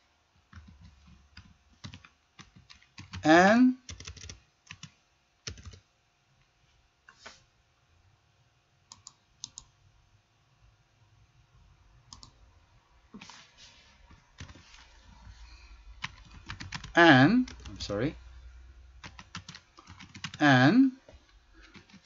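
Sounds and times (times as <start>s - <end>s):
keyboard and mouse clicks: 8.9s - 9.7s, 12.1s - 12.4s.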